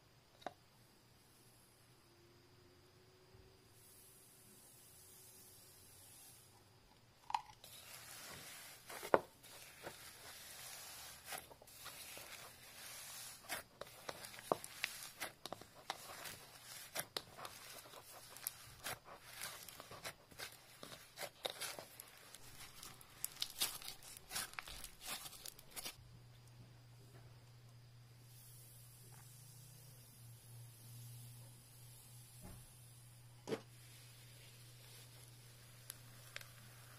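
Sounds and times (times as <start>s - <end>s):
crunchy slime being squeezed: 7.2s - 26.0s.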